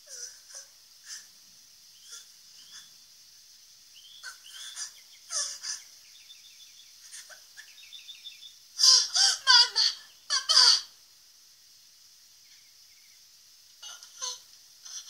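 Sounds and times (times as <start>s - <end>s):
small birds chirping: 0.0s - 10.8s, 12.0s - 15.0s
girl sobbing: 8.8s - 10.9s.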